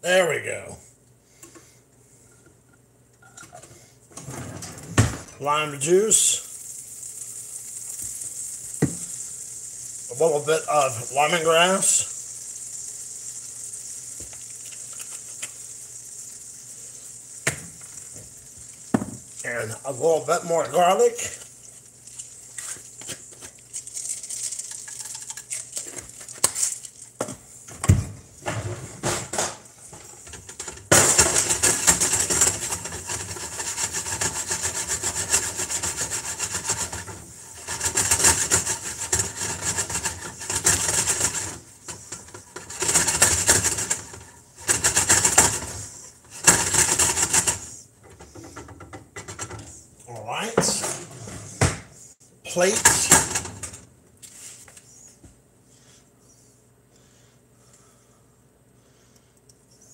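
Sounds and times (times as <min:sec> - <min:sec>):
sauce sizzling: 0:05.5 - 0:27.2, 0:29.6 - 0:46.6
whisk scraping a frying pan: 0:29.8 - 0:49.8.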